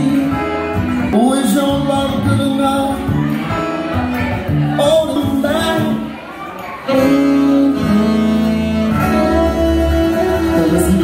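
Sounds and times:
live band playing country rock: 0.0s - 11.0s.

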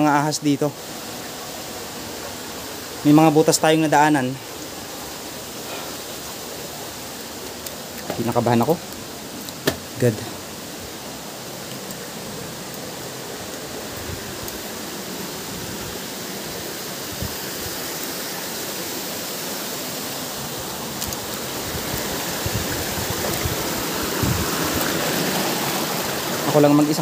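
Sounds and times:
rushing water: 0.0s - 27.0s.

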